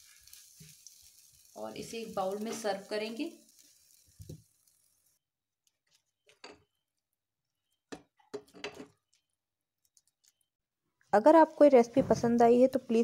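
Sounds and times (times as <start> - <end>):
faint sizzle from pan: 0.0 - 5.2.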